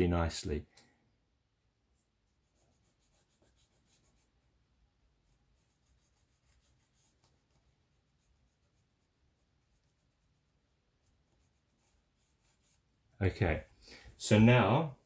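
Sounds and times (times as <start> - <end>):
cotton swab scratching on rails: 2.3 - 4.4, 5.2 - 13.0.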